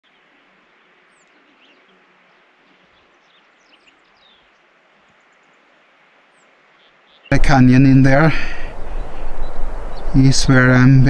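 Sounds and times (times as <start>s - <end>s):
faint outdoor ambience: 0.0s - 11.0s
high bird chirps: 7.1s - 10.4s.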